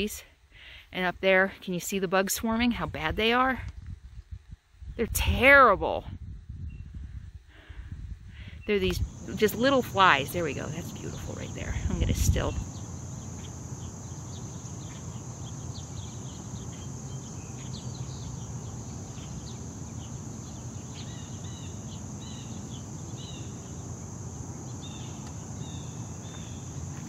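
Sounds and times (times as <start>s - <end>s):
insects trilling: 8.4s - 27.0s
bird chirps: 12.3s - 23.9s.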